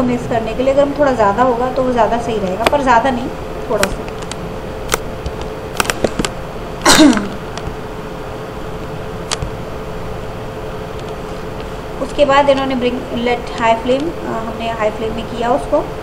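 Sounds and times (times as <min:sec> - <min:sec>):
constant hiss: 0:00.0 - 0:16.0
steady hum: 0:00.0 - 0:16.0
person sneezing or coughing: 0:06.8 - 0:07.4.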